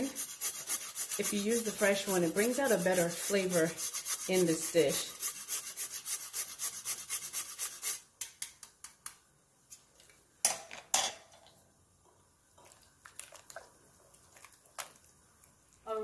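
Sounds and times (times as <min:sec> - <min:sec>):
nutmeg rasping on grater: 0:00.0 - 0:08.0
spatula scraping glass bowl: 0:00.0 - 0:08.0.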